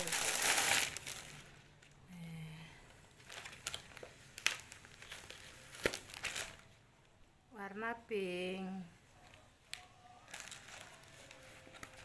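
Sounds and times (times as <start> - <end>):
plastic packaging crinkling: 0.0 - 2.0, 3.1 - 6.8, 9.6 - 12.0.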